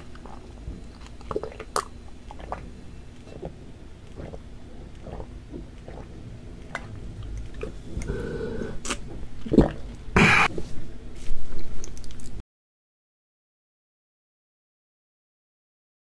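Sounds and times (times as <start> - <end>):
gulping water: 0.0 - 10.5
swallowing clicks: 3.2 - 10.0
breathy burst: 7.9 - 8.9.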